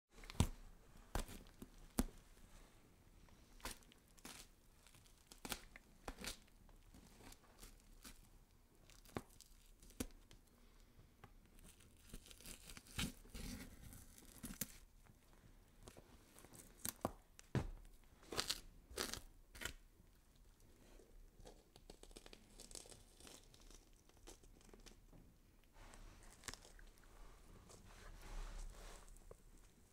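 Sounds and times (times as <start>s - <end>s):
flesh tearing and scraping: 3.6s - 6.5s, 18.2s - 19.8s, 21.4s - 25.0s, 26.2s - 27.1s.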